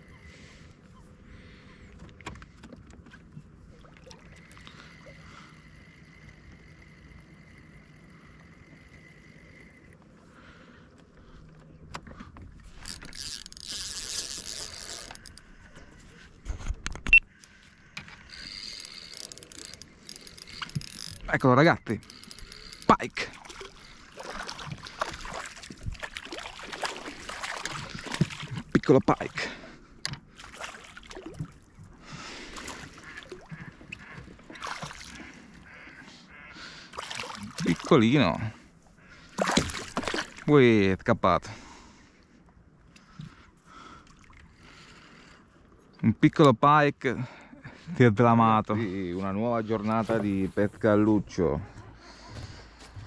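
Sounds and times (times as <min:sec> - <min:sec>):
fishing reel gears whirring: 0:04.3 - 0:10.0, 0:12.8 - 0:15.6, 0:18.0 - 0:23.0
fish thrashing in water: 0:22.1 - 0:28.7, 0:30.3 - 0:31.7, 0:32.5 - 0:35.4, 0:36.9 - 0:37.9, 0:39.3 - 0:40.5.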